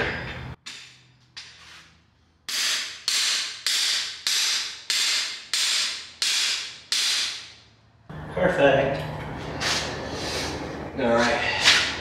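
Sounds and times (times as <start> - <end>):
hammer striking metal tool: 2.5 - 7.5.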